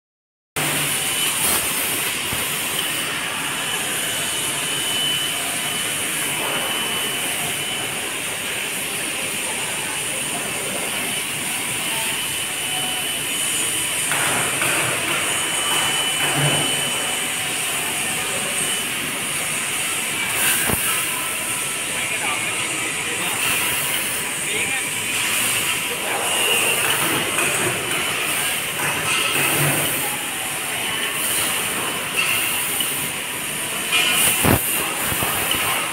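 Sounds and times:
faint high whistle: 0:03.8 - 0:08.0.

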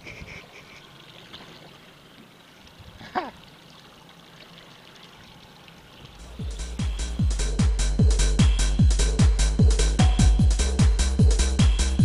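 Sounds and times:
electronic music with beat: 0:06.2 - 0:12.0.

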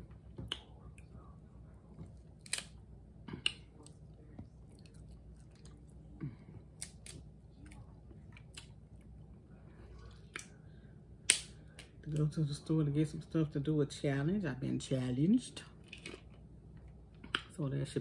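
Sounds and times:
crab shells cracking: 0:02.3 - 0:02.8
close-up chewing: 0:03.4 - 0:09.3.

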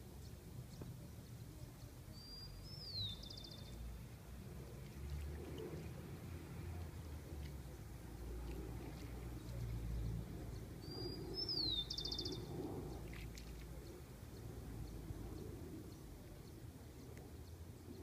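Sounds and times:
low outdoor rumble: 0:00.0 - 0:18.0
bird whistled call with trill: 0:10.8 - 0:12.4.

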